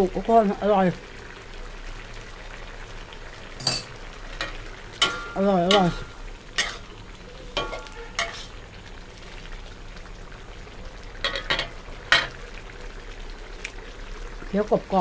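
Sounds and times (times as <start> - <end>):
curry bubbling and sizzling in wok: 0.0 - 15.0
metal spatula scraping wok: 3.6 - 8.6.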